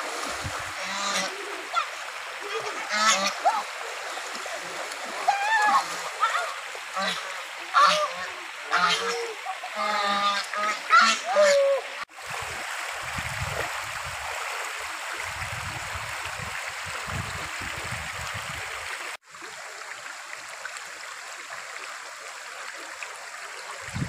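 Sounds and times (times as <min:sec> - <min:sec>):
stream running over rocks: 0:00.0 - 0:24.0.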